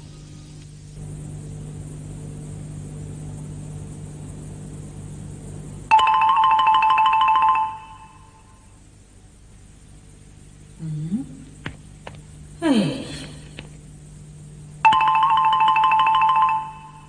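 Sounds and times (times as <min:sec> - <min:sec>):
low steady background drone: 0:00.0 - 0:17.0
electronic ringing trill: 0:05.9 - 0:08.7, 0:14.8 - 0:17.0.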